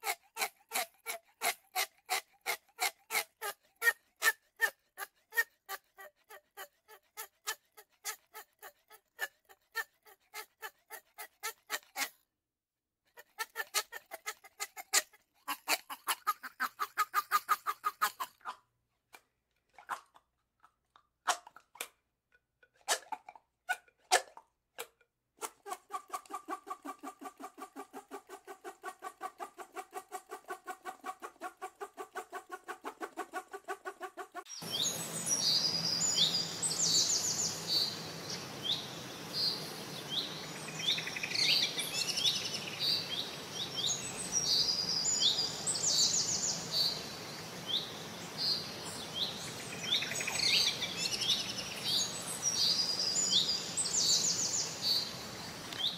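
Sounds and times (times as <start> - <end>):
high falling bird chirps: 34.3 - 55.2
steady background hiss: 34.7 - 55.9.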